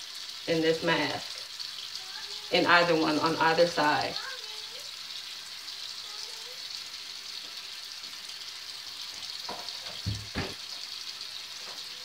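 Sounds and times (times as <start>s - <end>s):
dull knocks: 9.5s - 10.6s.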